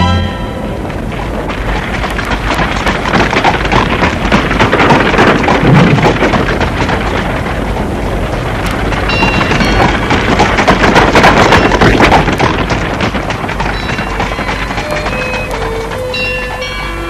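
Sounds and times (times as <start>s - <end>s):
steady rushing noise: 0.0s - 16.9s.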